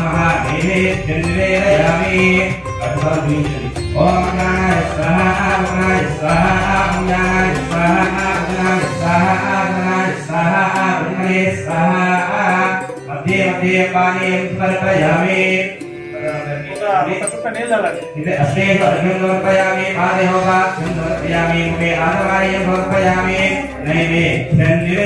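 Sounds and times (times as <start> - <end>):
person chanting in sing-song: 0.0 - 17.2, 18.3 - 25.0.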